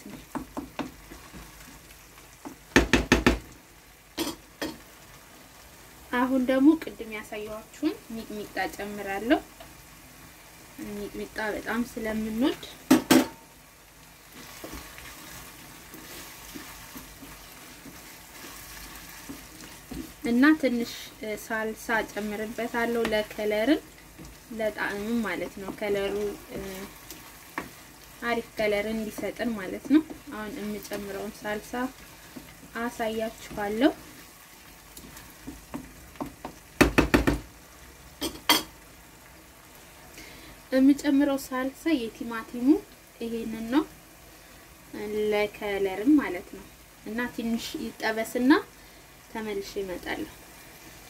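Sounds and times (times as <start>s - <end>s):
wooden spatula scraping: 0.0s - 2.6s, 14.3s - 36.6s
wooden spoon stirring: 0.0s - 3.4s, 14.3s - 37.4s
sauce sizzling in a frying pan: 0.0s - 51.0s
knocks: 2.7s - 3.4s, 36.4s - 37.5s.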